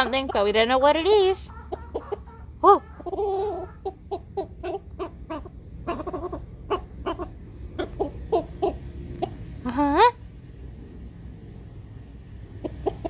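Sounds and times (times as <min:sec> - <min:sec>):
rooster clucking rapidly: 0:00.0 - 0:09.5, 0:12.6 - 0:13.0.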